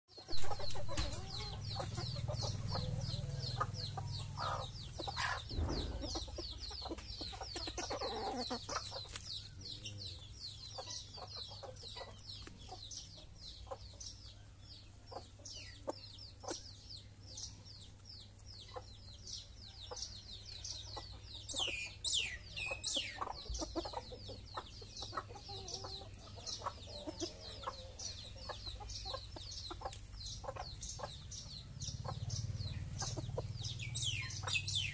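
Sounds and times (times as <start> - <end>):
chickens clucking: 0.1 - 34.9
sharp knock: 5.5 - 6.6.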